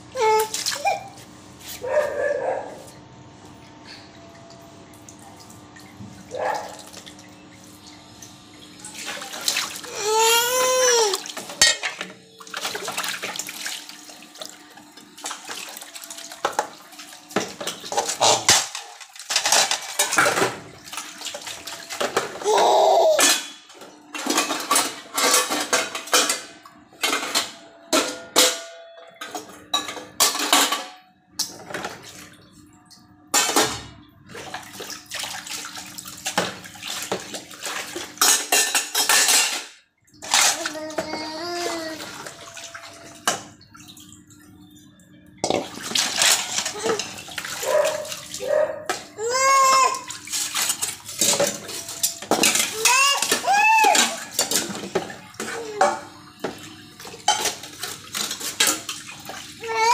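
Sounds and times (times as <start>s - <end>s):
water splashing in basins: 0.0s - 59.9s
metal dishes clinking: 11.5s - 12.1s, 24.2s - 31.0s, 38.2s - 41.1s, 50.6s - 56.0s, 57.2s - 58.9s.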